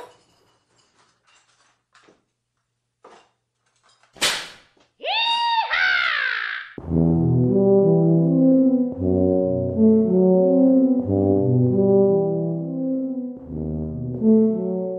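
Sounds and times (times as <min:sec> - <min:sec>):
high-pitched falling cry: 0:05.0 - 0:06.8.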